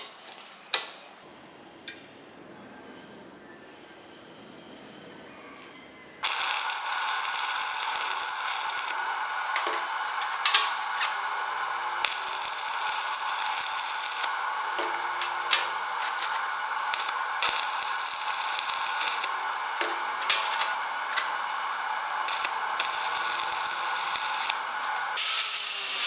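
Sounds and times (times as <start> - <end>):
welding arc hissing and crackling: 6.2 - 26.0.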